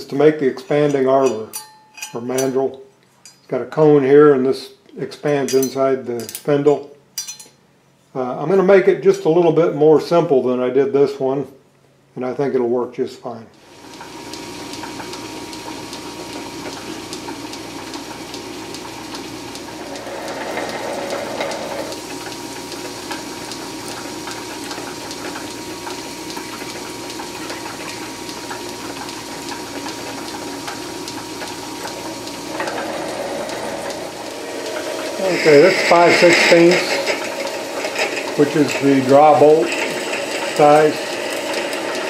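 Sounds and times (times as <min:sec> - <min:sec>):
metal lathe humming: 0:13.7 - 0:42.0
drill boring into metal: 0:18.4 - 0:42.0.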